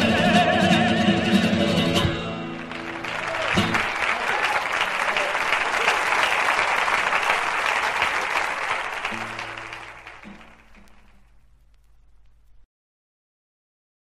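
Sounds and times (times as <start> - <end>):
audience applauding: 2.3 - 12.5
low steady notes: 9.0 - 12.6.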